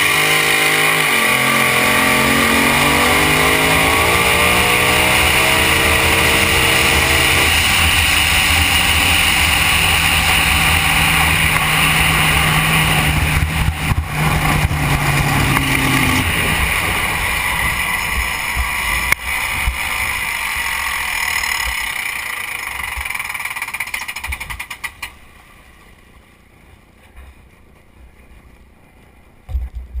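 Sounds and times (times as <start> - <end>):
water rushing: 0.0 - 24.3
boat engine running loud: 0.0 - 24.4
wind rushing: 2.0 - 20.1.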